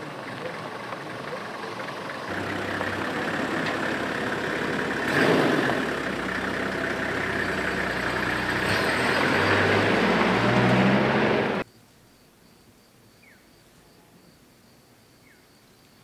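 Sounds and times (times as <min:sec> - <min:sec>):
vehicle engine idling: 0:00.0 - 0:11.6.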